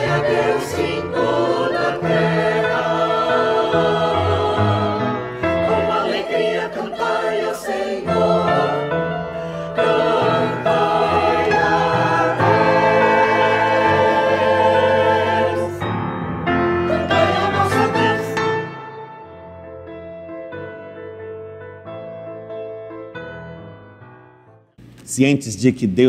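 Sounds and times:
choir singing a hymn: 0.0 - 19.0.

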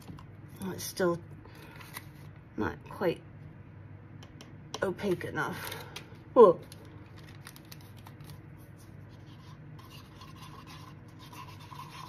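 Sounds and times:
stick stirring resin in cup: 9.1 - 12.0.

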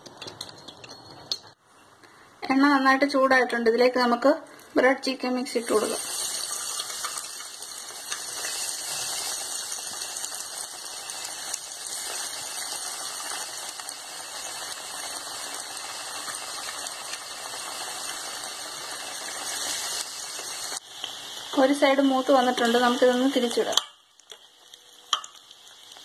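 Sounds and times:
chicken deep-frying in sizzling oil: 5.4 - 26.0.

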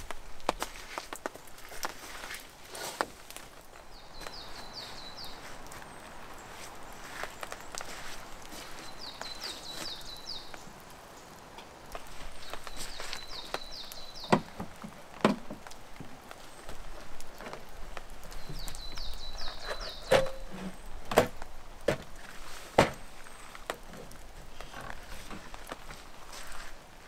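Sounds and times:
hard cases knocking and thudding: 14.2 - 15.7, 19.6 - 22.1.

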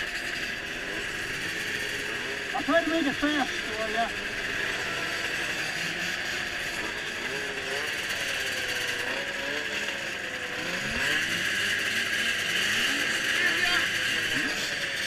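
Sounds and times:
snowmobile engines revving: 0.0 - 15.0.

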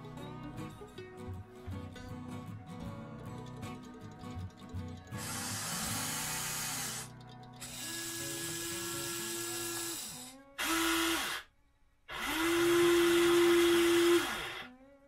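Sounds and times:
electric motors whirring: 5.2 - 11.4, 12.1 - 14.6.

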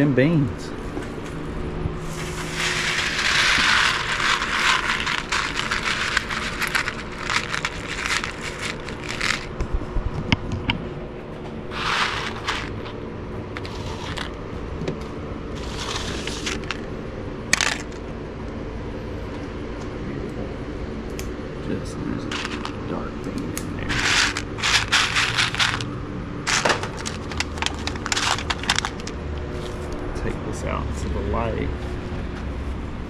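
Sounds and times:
coffee beans rattling into a tray: 2.1 - 9.6, 11.7 - 12.9, 13.6 - 14.4, 15.6 - 16.9, 17.5 - 18.0, 22.2 - 22.9, 23.8 - 25.9, 26.5 - 29.8
scattered clicks of beans: 2.5 - 9.6, 11.8 - 12.9, 15.6 - 16.9, 17.5 - 18.0, 22.3 - 22.8, 23.6 - 25.9, 26.5 - 29.2.

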